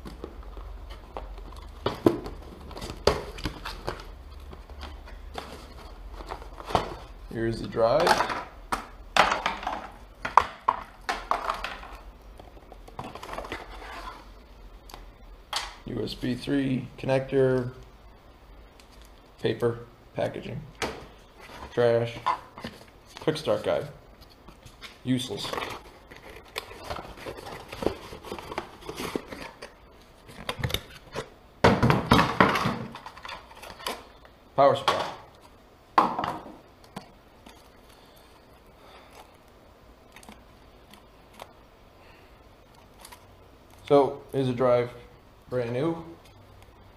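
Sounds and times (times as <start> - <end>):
cardboard and plastic rustling: 0.0 - 7.2, 9.2 - 14.4, 21.0 - 35.6.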